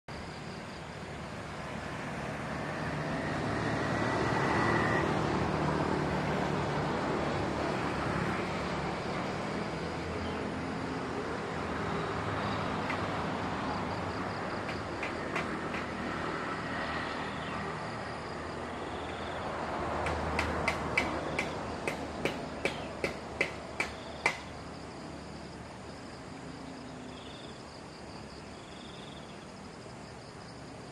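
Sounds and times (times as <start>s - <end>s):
outdoor background: 0.0s - 30.9s
distant engine noise: 0.1s - 29.7s
sharp clicks: 20.0s - 24.5s.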